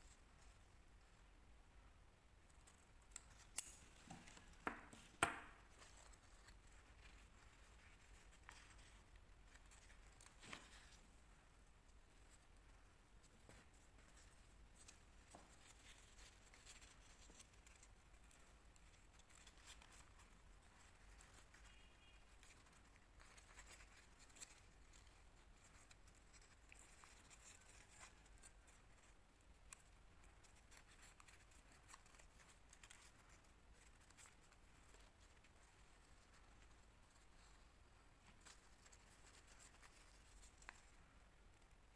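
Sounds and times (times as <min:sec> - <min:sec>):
paper crinkling and rustling: 0:03.3 - 0:11.2.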